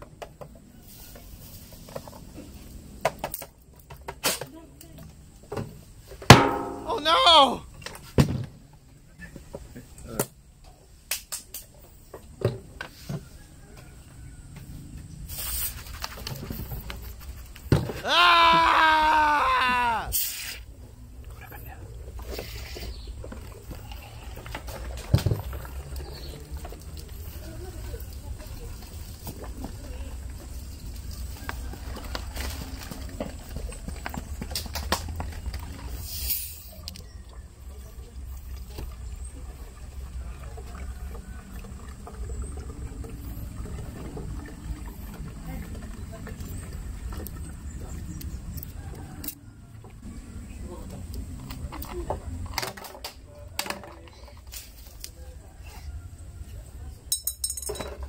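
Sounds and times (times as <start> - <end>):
person yelling: 6.8 - 7.7, 18.0 - 20.2
short hiss: 15.3 - 16.0, 20.1 - 20.6, 36.0 - 36.7
fizzing hiss: 36.0 - 36.8
soda glugging and splashing: 38.2 - 48.5.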